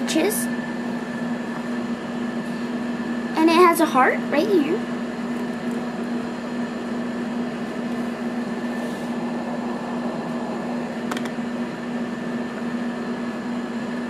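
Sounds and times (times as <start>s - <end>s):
machine hum: 0.0s - 14.0s.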